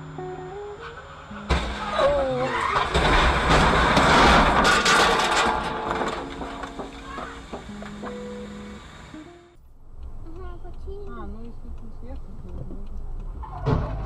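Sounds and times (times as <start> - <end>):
tyre squeal: 0.7 - 3.6, 13.3 - 14.0
loud rushing noise with knocks: 2.7 - 8.4.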